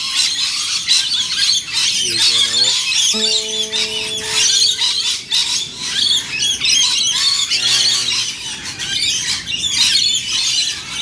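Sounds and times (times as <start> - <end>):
parrots calling with shrill chatter: 2.0 - 4.9
classical guitar ringing: 3.1 - 4.8.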